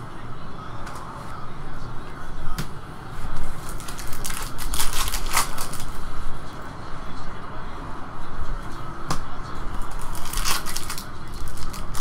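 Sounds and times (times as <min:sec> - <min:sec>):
wrapper crinkling and tearing: 0:03.6 - 0:06.0, 0:09.9 - 0:12.0.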